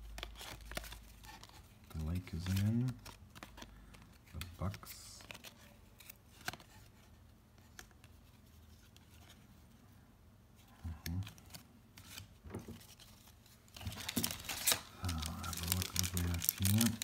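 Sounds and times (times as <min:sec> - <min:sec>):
cards snapping and rustling: 0:00.0 - 0:06.9, 0:11.0 - 0:17.0.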